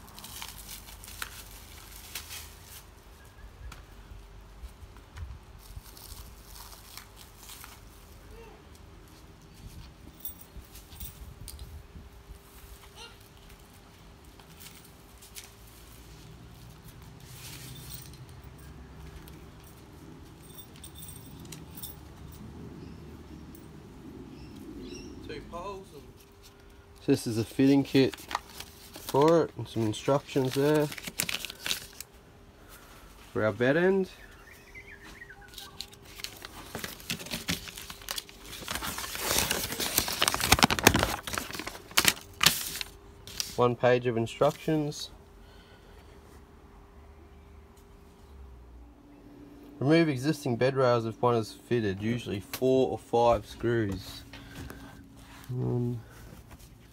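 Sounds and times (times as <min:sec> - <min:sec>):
packaging and paper crinkling: 0:00.0 - 0:03.0, 0:05.6 - 0:08.2, 0:27.4 - 0:32.2, 0:35.4 - 0:43.6
canvas rustling and scraping: 0:00.0 - 0:03.3, 0:05.5 - 0:08.2, 0:12.4 - 0:22.4, 0:35.0 - 0:43.7, 0:53.7 - 0:56.9
light clicks and clinks: 0:17.5 - 0:22.5.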